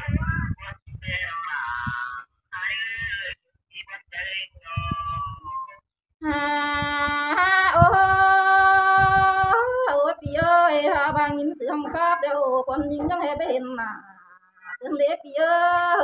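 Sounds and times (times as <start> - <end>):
woman singing slow melody: 6.2 - 14.2, 14.9 - 16.0.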